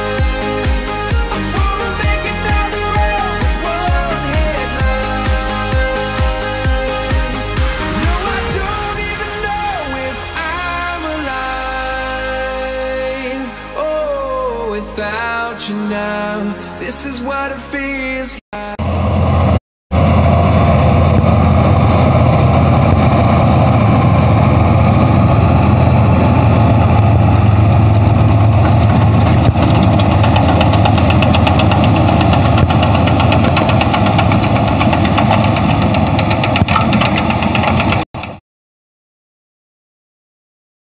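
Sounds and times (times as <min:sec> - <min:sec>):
tractor engine running: 0:00.0 - 0:11.7, 0:18.8 - 0:38.4.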